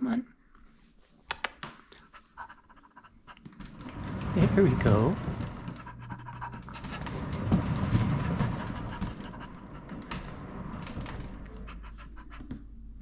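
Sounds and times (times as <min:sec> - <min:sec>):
exercise wheel rolling rumble: 0:03.4 - 0:13.0.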